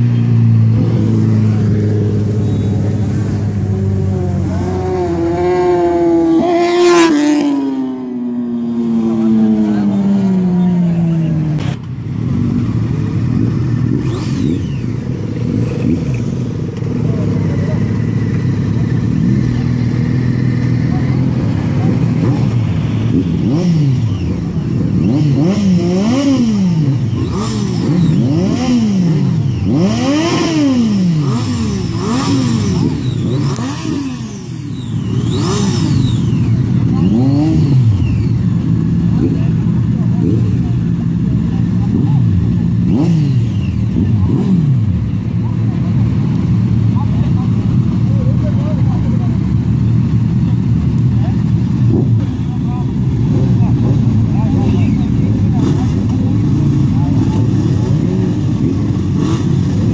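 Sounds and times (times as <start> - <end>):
motorbike engines revving: 0.0 - 59.9.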